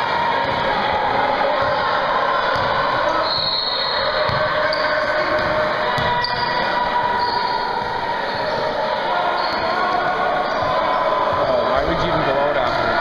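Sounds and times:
hall background din: 0:00.0 - 0:13.0.

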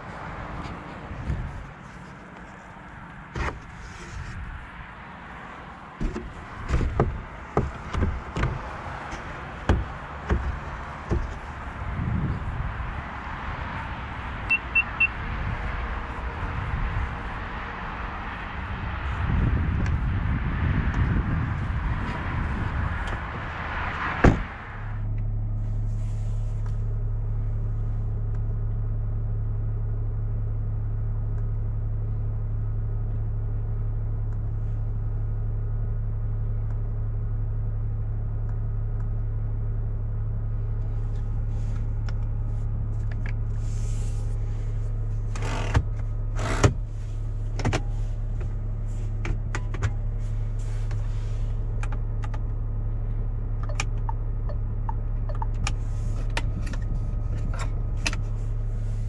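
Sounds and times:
low cabin hum: 0:00.0 - 0:59.0
car door shutting: 0:03.3 - 0:04.4, 0:06.0 - 0:11.7, 0:24.0 - 0:24.7, 0:45.3 - 0:46.9, 0:47.5 - 0:51.0.

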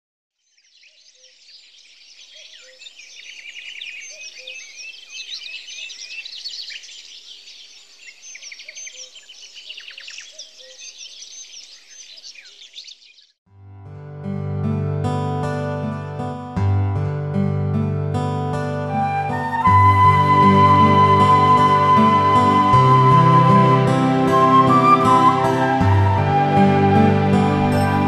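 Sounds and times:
songbirds chirping and trilling: 0:00.4 - 0:13.4.

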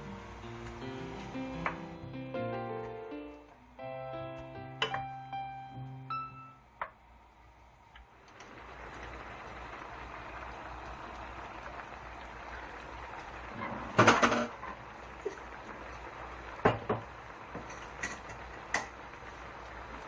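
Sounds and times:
stew simmering and bubbling: 0:06.7 - 0:20.0.

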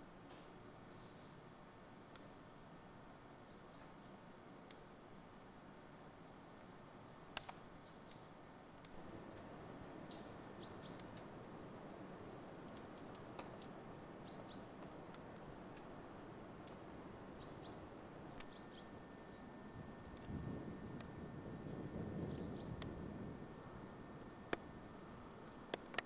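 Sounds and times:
faint high bird chirps: 0:00.0 - 0:01.6, 0:03.4 - 0:04.1, 0:06.2 - 0:08.7, 0:10.1 - 0:11.3, 0:14.2 - 0:20.3, 0:22.3 - 0:22.8
steady hiss: 0:00.0 - 0:26.0.

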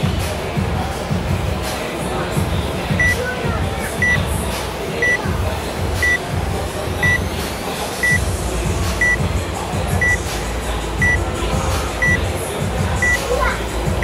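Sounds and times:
gym music with steady beat: 0:00.0 - 0:14.0
timer short high beeps: 0:04.0 - 0:04.2, 0:09.0 - 0:09.2, 0:13.0 - 0:13.2.

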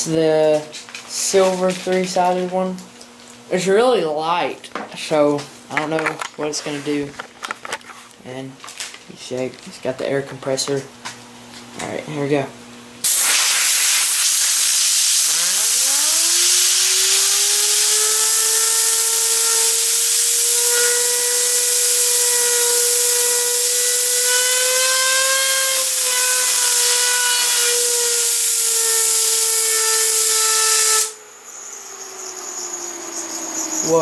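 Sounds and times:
compressed air hissing: 0:13.0 - 0:31.3
fidget spinner whining: 0:15.2 - 0:34.0.

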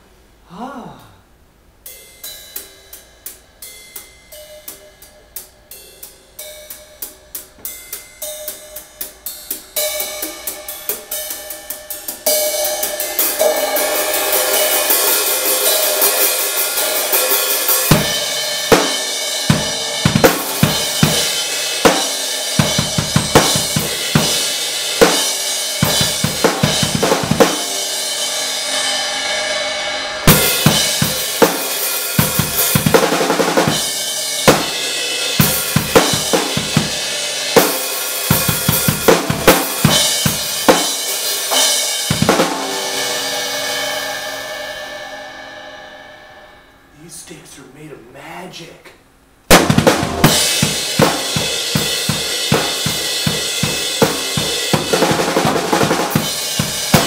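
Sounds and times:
bass drum and drum hits: 0:49.5 - 0:57.0.

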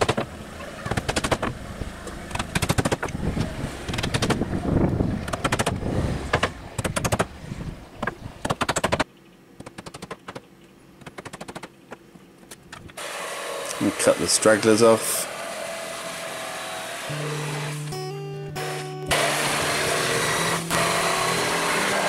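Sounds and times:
hammer driving nails into wood: 0:00.9 - 0:01.5, 0:02.3 - 0:03.1, 0:03.9 - 0:04.4, 0:05.2 - 0:07.3, 0:08.0 - 0:09.0.

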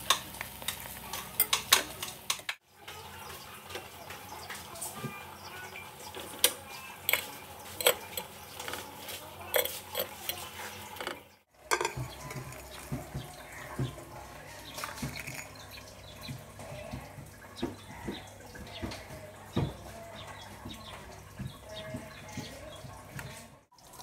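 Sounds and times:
metal tongs clicking on pan: 0:00.0 - 0:02.6, 0:06.4 - 0:08.9, 0:09.5 - 0:12.0
toast knocking onto plate: 0:11.0 - 0:14.0.

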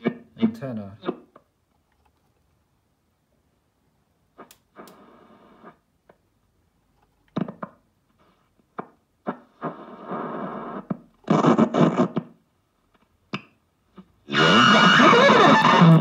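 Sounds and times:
garbled radio station audio: 0:08.2 - 0:12.4, 0:14.3 - 0:16.0
radio static bursts: 0:09.2 - 0:12.4, 0:14.3 - 0:16.0.

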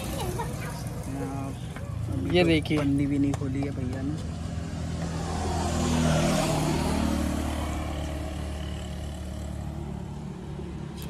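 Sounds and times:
vehicle passing: 0:00.0 - 0:11.0.

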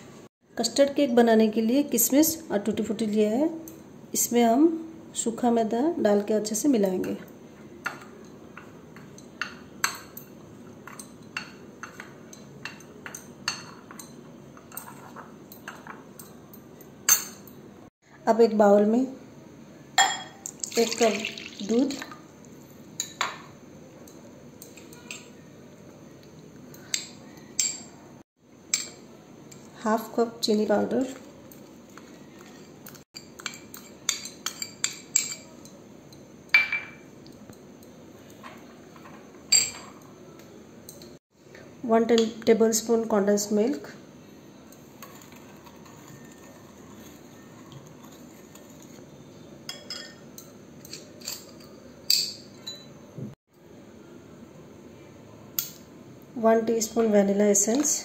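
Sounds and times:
metal spoon clinking glass bowl: 0:07.8 - 0:17.6, 0:20.0 - 0:20.5, 0:32.4 - 0:38.0, 0:38.6 - 0:40.0, 0:49.7 - 0:53.0
glass bowls clinking: 0:20.0 - 0:22.1, 0:32.3 - 0:37.4, 0:38.4 - 0:40.1, 0:49.7 - 0:53.0.

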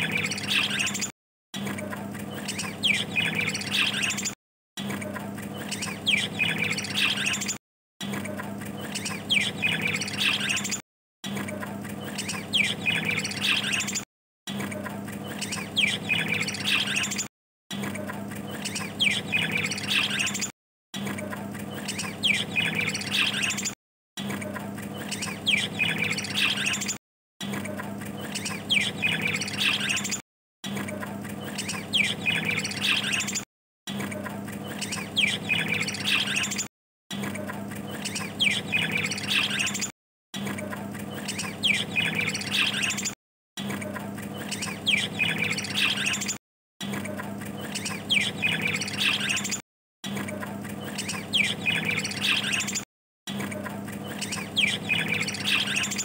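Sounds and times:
budgerigars chattering and chirping: 0:02.4 - 0:04.4, 0:05.6 - 0:07.6, 0:08.8 - 0:10.8, 0:12.0 - 0:14.0, 0:15.3 - 0:17.3, 0:21.8 - 0:23.8, 0:25.0 - 0:27.0, 0:28.3 - 0:30.2, 0:31.4 - 0:33.4, 0:34.7 - 0:36.7, 0:38.0 - 0:39.9, 0:41.2 - 0:43.2, 0:44.4 - 0:46.4, 0:47.6 - 0:49.6, 0:50.8 - 0:52.8, 0:54.1 - 0:56.0.

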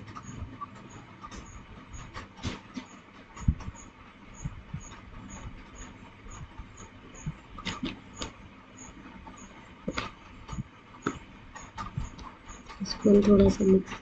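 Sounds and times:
faint regular ticking: 0:02.8 - 0:14.0.

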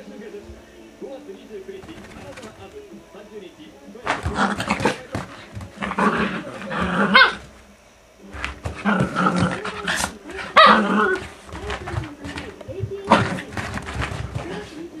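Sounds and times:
dogs barking: 0:04.1 - 0:07.6, 0:08.7 - 0:11.4
dogs growling: 0:04.1 - 0:07.6, 0:08.3 - 0:15.0.

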